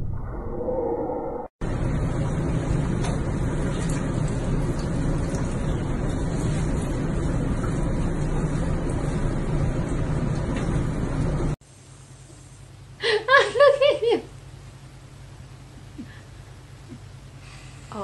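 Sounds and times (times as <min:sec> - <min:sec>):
low rumble: 0:00.0 - 0:03.6
water rushing in bathtub: 0:01.7 - 0:11.6.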